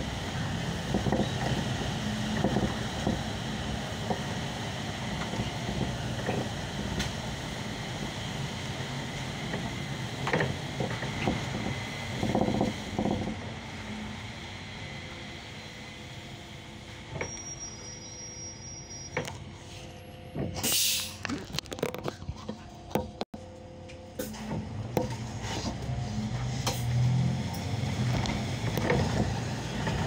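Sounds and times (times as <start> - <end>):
bus engine and road rumble: 0.0 - 30.0
rattles and clicks: 20.4 - 23.4.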